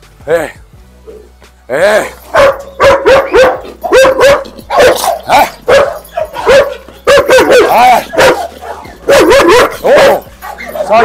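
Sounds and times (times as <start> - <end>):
dog barking: 2.3 - 11.0.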